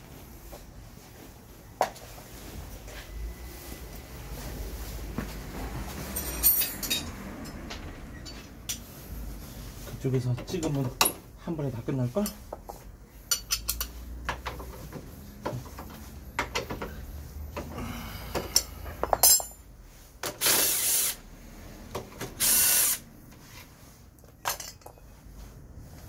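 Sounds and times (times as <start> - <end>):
short bursts of hiss: 20.4 - 21.3, 22.4 - 23.1.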